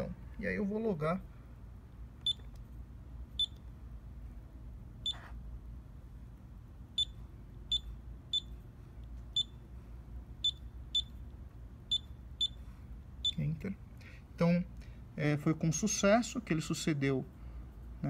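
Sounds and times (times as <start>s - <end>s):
touchscreen key beeps: 2.2s - 2.5s, 5.1s - 5.3s.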